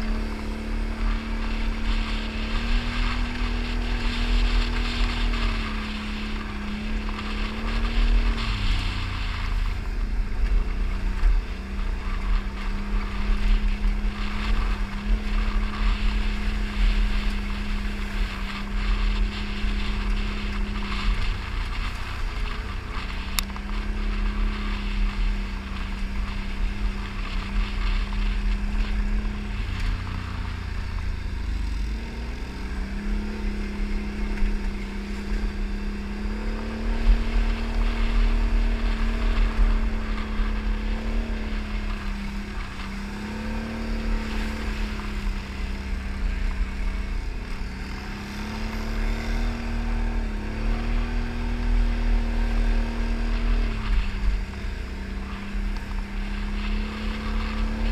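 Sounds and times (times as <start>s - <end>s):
atv engine revving: 0.0s - 57.9s
low rumble: 0.0s - 57.9s.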